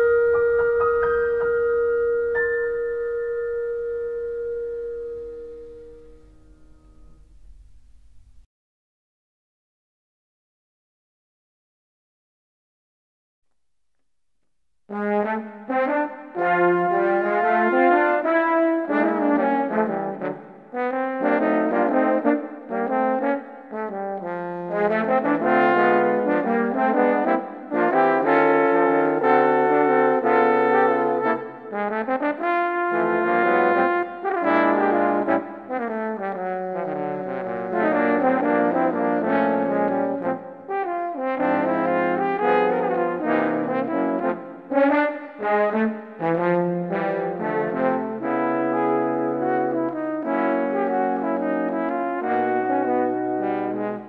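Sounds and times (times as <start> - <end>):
brass band playing: 14.9 - 54.0.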